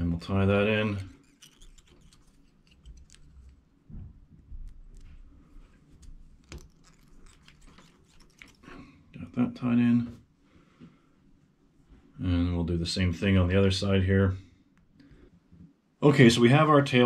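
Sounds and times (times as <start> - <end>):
thread wrapping ticks and rustles: 0.7 - 3.6, 4.4 - 8.9.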